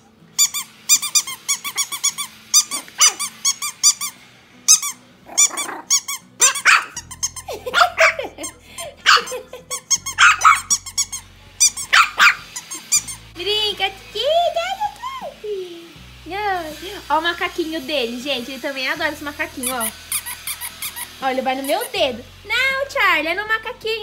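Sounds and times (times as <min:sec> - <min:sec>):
squeaky dog toy: 0:00.0 - 0:13.3, 0:19.6 - 0:22.0
puppy growling and yipping: 0:02.6 - 0:04.0, 0:04.7 - 0:13.2, 0:19.6 - 0:21.1.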